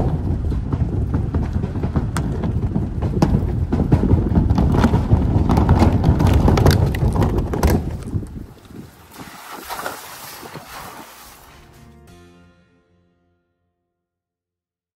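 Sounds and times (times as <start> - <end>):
planks knocking and clattering: 0.0 - 8.4
tyres rumbling over bridge deck: 0.0 - 8.4.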